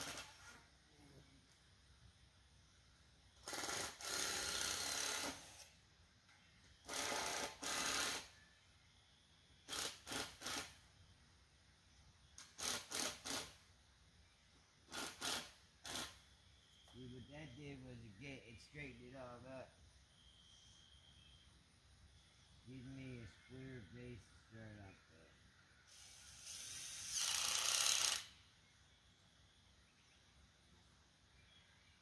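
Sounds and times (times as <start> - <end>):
tool working on lumber: 0.0 - 0.6, 3.4 - 5.7, 6.9 - 8.3, 9.7 - 10.8, 12.4 - 13.6, 14.9 - 16.2, 25.9 - 28.3.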